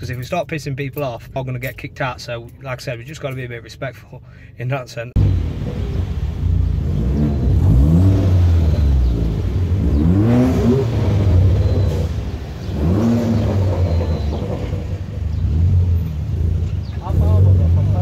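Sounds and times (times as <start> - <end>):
car engine idling and revving: 5.1 - 18.0.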